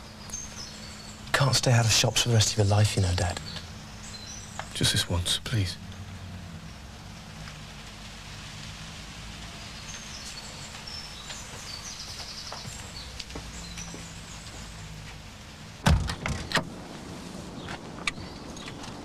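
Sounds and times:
low outdoor background: 0:00.0 - 0:19.0
car door slamming: 0:15.8 - 0:16.7.

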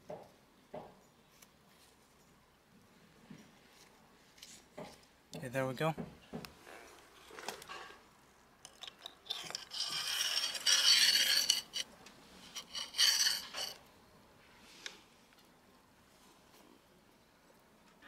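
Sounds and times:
plastic housing scraping on steel shaft: 0:08.7 - 0:11.9, 0:12.5 - 0:13.8.

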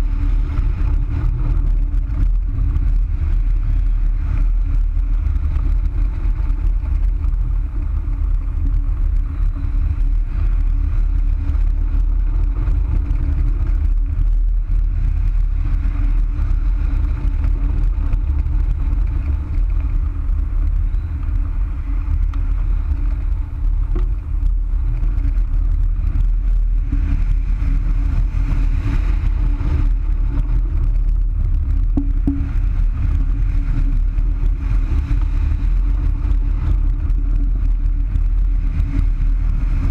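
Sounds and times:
wind rushing over camera: 0:00.0 - 0:39.9.

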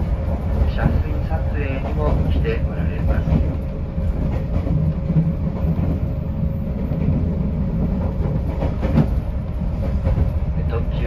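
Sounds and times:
electric train low rumble: 0:00.0 - 0:11.0.

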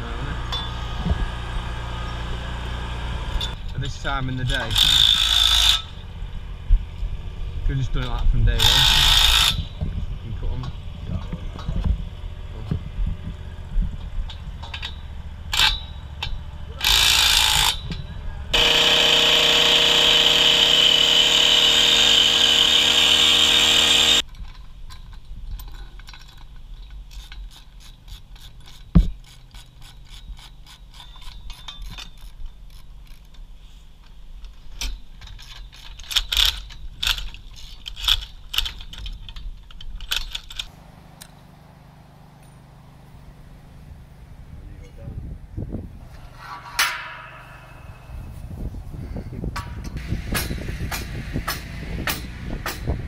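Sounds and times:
metallic clicks and clinks: 0:24.2 - 0:33.5, 0:34.1 - 0:41.4.

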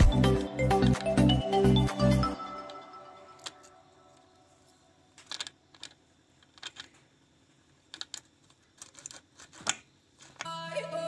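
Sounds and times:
metal bolts clicking and tapping: 0:05.2 - 0:07.0.

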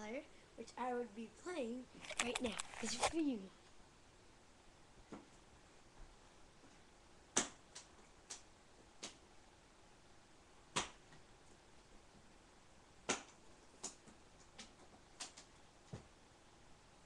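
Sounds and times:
sharp irregular clicks: 0:02.0 - 0:03.1.

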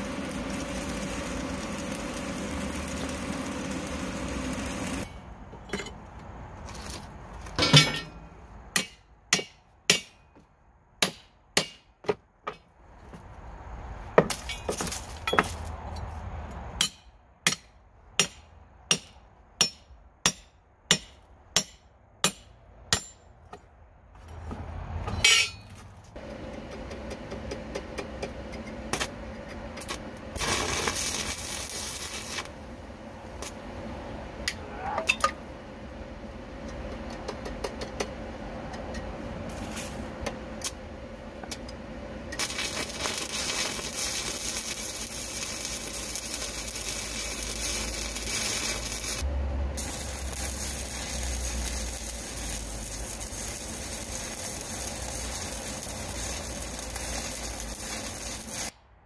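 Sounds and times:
arc welding crackling: 0:00.0 - 0:05.2, 0:26.2 - 0:33.7, 0:42.3 - 0:58.8.

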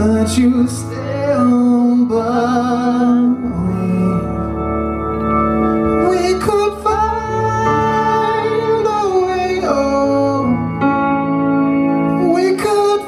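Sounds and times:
man singing long notes: 0:00.0 - 0:04.6, 0:05.9 - 0:11.0, 0:12.1 - 0:13.0
live rock band playing: 0:00.0 - 0:13.0.

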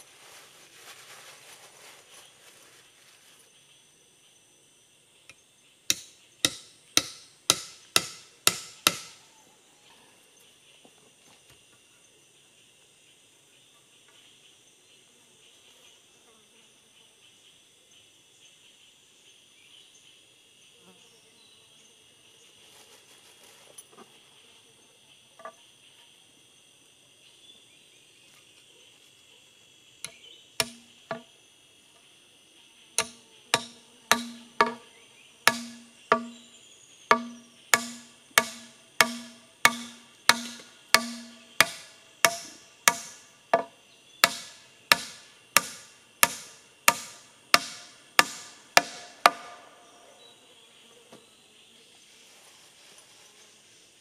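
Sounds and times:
hatchet chopping wood: 0:05.9 - 0:09.2, 0:30.1 - 0:31.2, 0:33.0 - 0:34.9, 0:35.5 - 0:36.5, 0:37.1 - 0:49.6
high insect buzz: 0:18.3 - 0:54.0.

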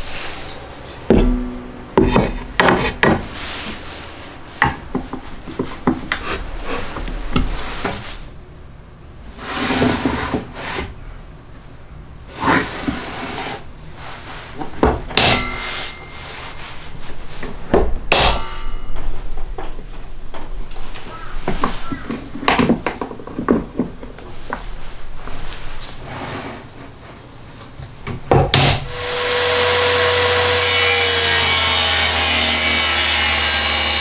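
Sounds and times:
wood knocking on wood: 0:01.1 - 0:03.2, 0:21.1 - 0:24.2.

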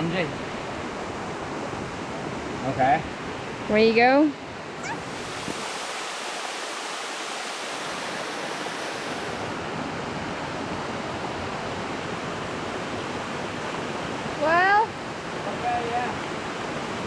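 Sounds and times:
waterfall rushing: 0:04.7 - 0:09.8.

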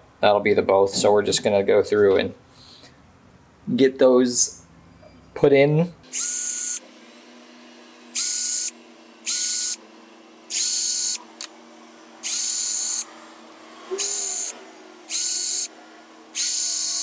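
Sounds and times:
cordless drill whining: 0:06.1 - 0:09.8, 0:10.4 - 0:11.5, 0:12.2 - 0:13.2, 0:13.9 - 0:17.0.

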